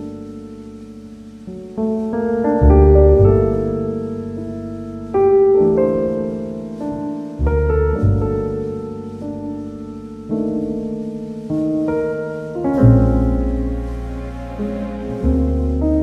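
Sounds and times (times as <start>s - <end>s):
deep bass note: 0.0s - 11.9s, 12.6s - 16.0s
slow piano chords: 0.0s - 16.0s.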